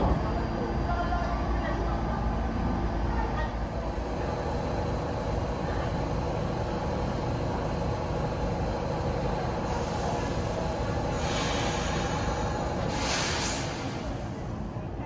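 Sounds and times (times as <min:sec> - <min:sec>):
subway train hum and rumble: 0:00.0 - 0:15.0
hiss: 0:09.6 - 0:14.4.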